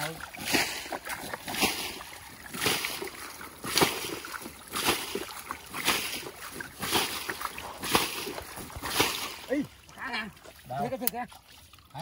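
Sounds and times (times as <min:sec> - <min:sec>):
water splashing: 0:00.0 - 0:12.0.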